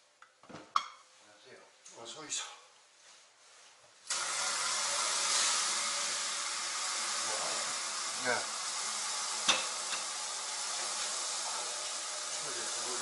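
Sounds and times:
tap water pouring into metal container: 4.1 - 13.0.

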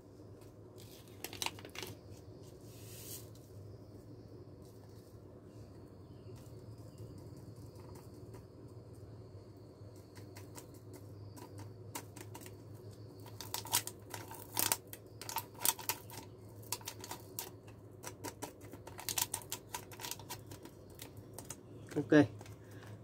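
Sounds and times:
powder sachet crinkling: 0.8 - 2.2, 11.4 - 23.0.

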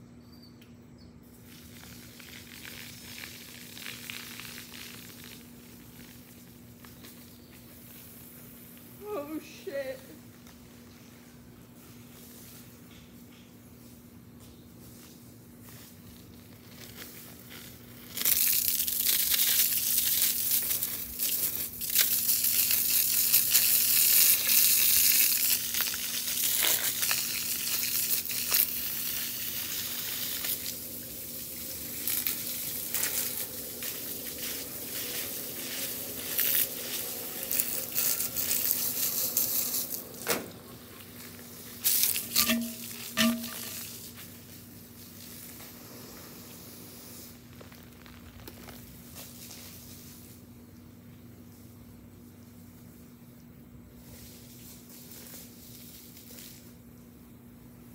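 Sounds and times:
water spraying from garden hose: 1.4 - 10.0, 16.5 - 50.4.

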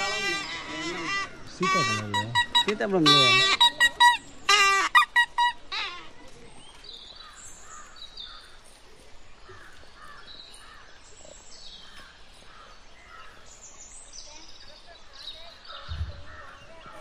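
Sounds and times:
birds calling: 0.0 - 17.0
distant children's chatter: 14.1 - 17.0.

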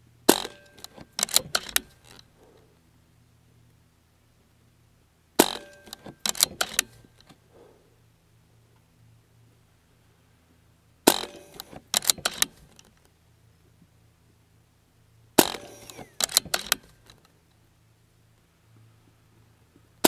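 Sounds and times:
air rifle shots: 0.3 - 2.0, 5.4 - 7.0, 11.1 - 12.6, 15.4 - 17.0
clicks and rattles: 0.3 - 2.2, 5.4 - 7.4, 11.1 - 13.1, 15.4 - 17.3.

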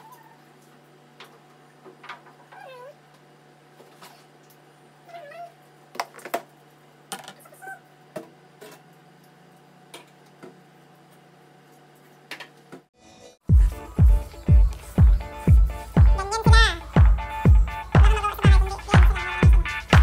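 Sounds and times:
cat meowing: 2.5 - 3.0, 5.1 - 5.6
loud music with heavy beat: 13.5 - 20.0
steady low hum: 13.5 - 20.0.

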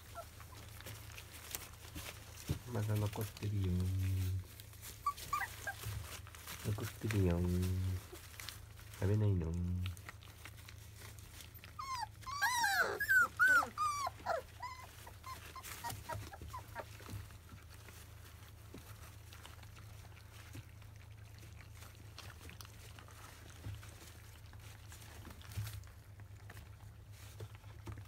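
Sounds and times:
puppies whining: 0.0 - 2.5, 4.5 - 6.6, 10.5 - 26.5
puppy squeaks: 4.9 - 6.2, 11.6 - 17.1.

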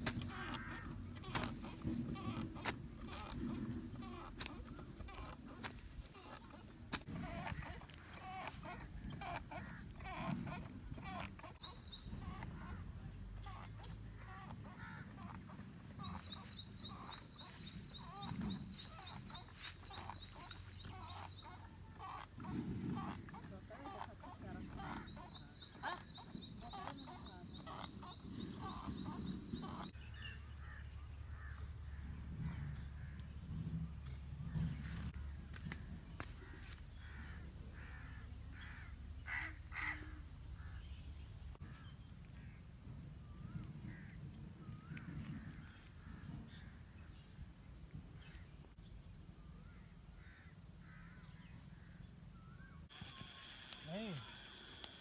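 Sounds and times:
birds calling: 0.0 - 55.0
crow cawing: 0.2 - 1.6, 36.4 - 40.8.

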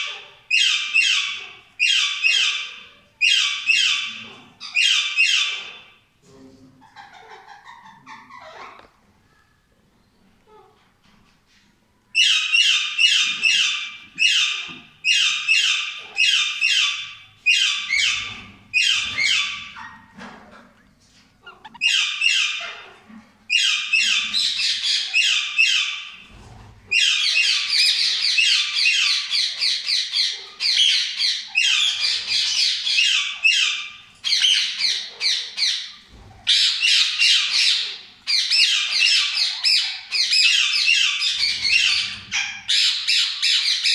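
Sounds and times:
parakeets chattering: 12.2 - 26.1, 26.9 - 43.9.

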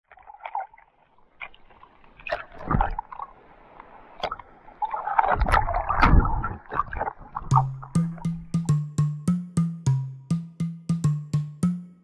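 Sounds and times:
seawater sloshing and splashing: 0.1 - 8.3
water gurgling: 0.1 - 8.7.

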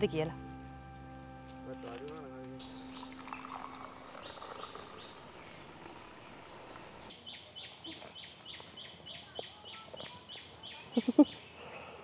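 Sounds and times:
liquid pouring into a cup: 2.9 - 7.1.

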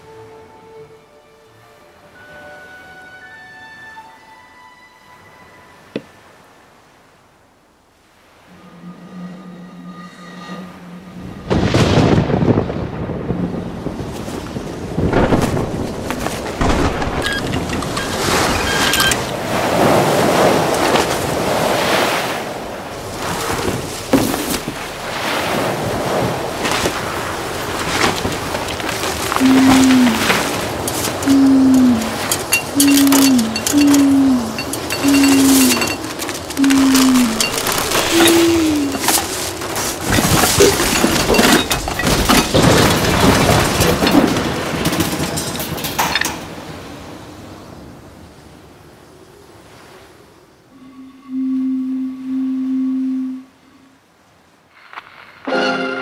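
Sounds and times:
surging sea waves: 0.0 - 56.0
storm wind gusting: 9.4 - 50.7
scrap metal crashing and clattering: 37.3 - 46.1.

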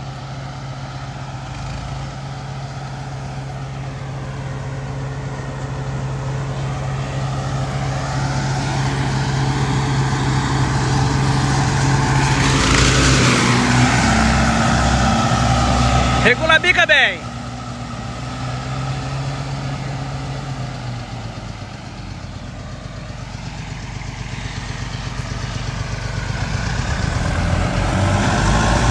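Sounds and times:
tractor engine drone: 0.0 - 28.9
forage harvester chopping corn: 12.1 - 14.0.

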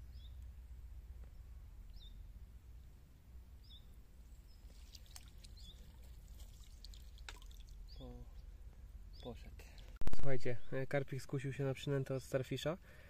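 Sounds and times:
bird chirping: 0.0 - 0.5, 1.2 - 2.3, 3.6 - 10.8
water splashing and dripping: 4.6 - 7.9.

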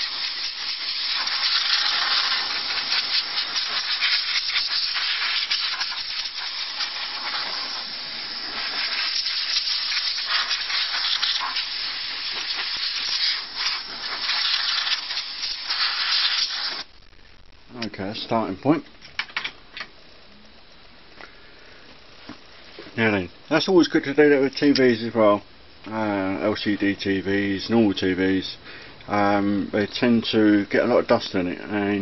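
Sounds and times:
air blow gun hissing: 0.0 - 16.9.

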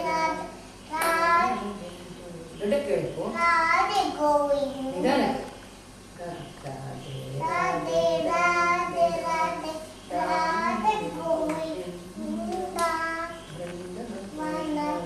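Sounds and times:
girl singing a chant: 0.0 - 1.6, 7.4 - 13.6, 14.3 - 15.0.

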